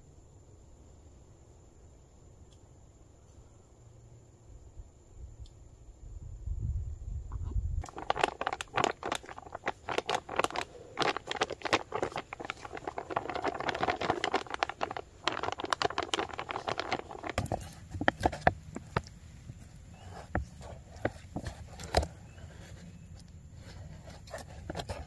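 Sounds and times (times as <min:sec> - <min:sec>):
foil pouch crinkling: 0:07.8 - 0:19.1.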